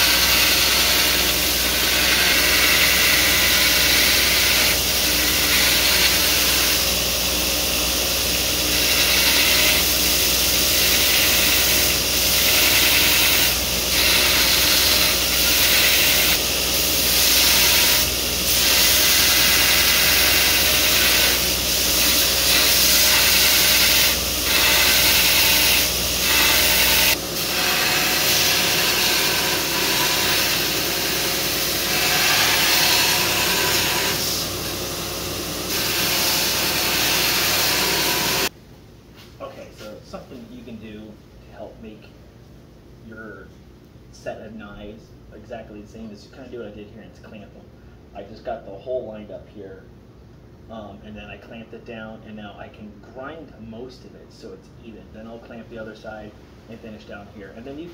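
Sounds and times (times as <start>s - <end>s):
belt grinder grinding steel: 0.0s - 38.5s.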